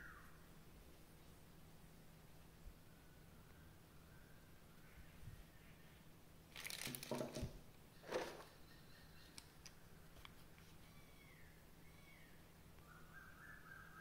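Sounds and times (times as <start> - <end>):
packaging rustling: 6.5 - 7.5.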